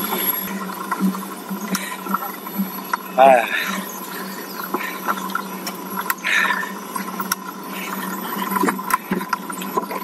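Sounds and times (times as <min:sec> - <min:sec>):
bicycle riding hiss: 0:00.0 - 0:09.3
bicycle clicks and rattles: 0:03.7 - 0:10.0.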